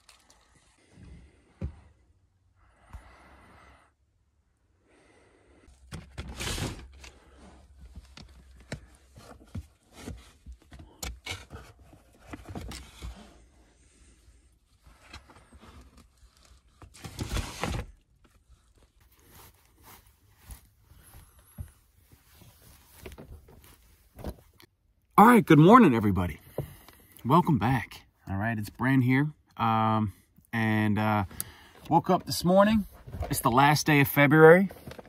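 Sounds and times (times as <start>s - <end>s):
clothes rustling: 18.4s - 24.7s
items scraping and knocking: 34.7s - 35.0s.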